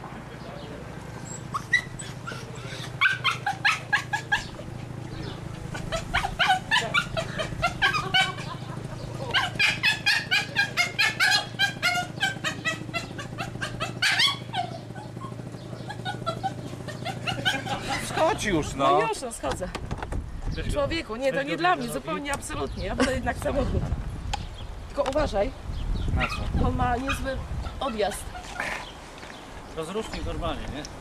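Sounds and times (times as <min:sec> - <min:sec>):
dog yapping: 0:01.2 - 0:04.7, 0:05.7 - 0:18.2, 0:26.2 - 0:28.8.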